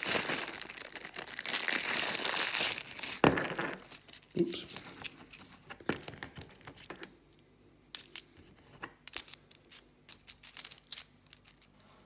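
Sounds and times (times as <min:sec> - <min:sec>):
coins clinking on cloth mat: 0:01.7 - 0:07.1, 0:07.8 - 0:08.4, 0:09.0 - 0:12.0.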